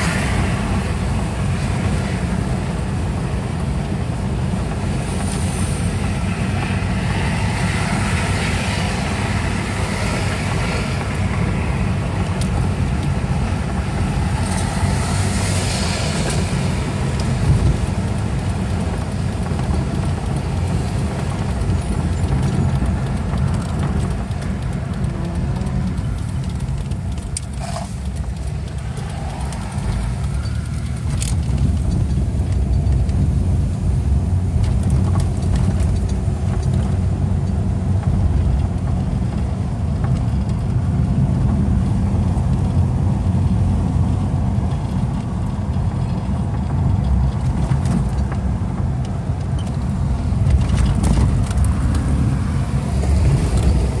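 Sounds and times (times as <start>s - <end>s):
car engine and road noise: 0.0s - 54.0s
light clicks and rattles: 17.1s - 33.7s.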